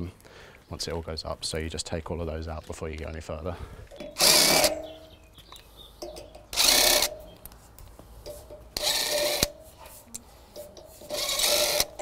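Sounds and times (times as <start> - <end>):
impact driver backing out bolts: 3.9 - 5.2, 6.0 - 7.3, 10.5 - 12.0.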